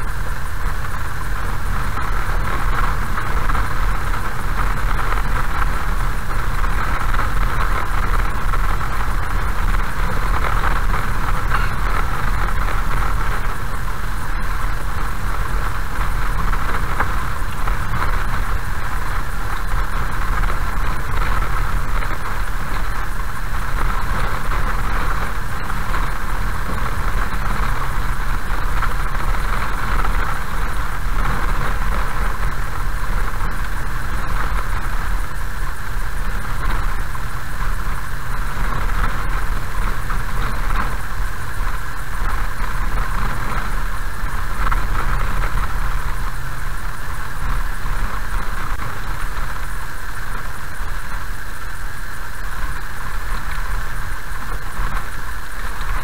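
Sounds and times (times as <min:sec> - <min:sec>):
tyres on gravel: 0:00.0 - 0:49.8
car engine hum: 0:00.0 - 0:56.0.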